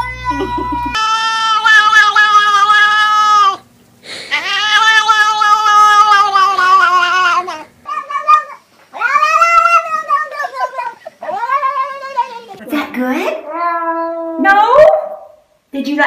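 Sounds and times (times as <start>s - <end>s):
cat meowing: 0.0s - 3.6s, 4.3s - 12.6s.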